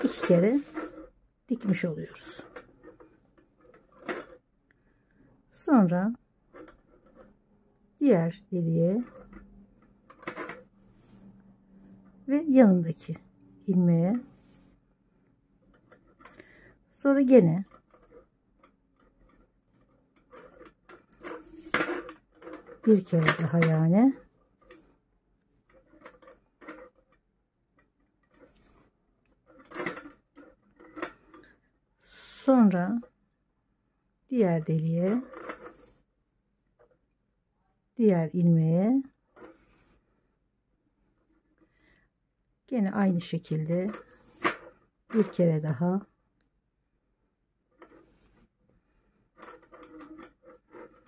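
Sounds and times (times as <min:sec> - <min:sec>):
yarn rustling: 0:00.0 - 0:02.8
yarn rubbing and rustling: 0:00.0 - 0:04.4, 0:10.3 - 0:12.0, 0:14.0 - 0:14.9, 0:17.3 - 0:27.1, 0:43.5 - 0:45.9, 0:47.7 - 0:48.6.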